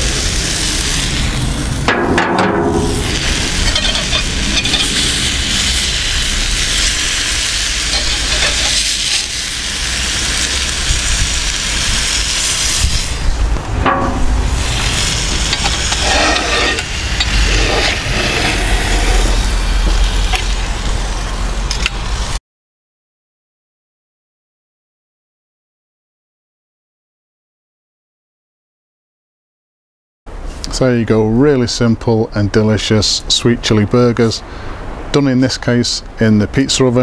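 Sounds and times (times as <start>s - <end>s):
burgers sizzling in a skillet: 0.0s - 1.9s, 2.8s - 13.6s, 14.4s - 22.3s
metal tongs clinking: 2.9s - 5.0s, 7.9s - 8.8s, 15.5s - 18.0s.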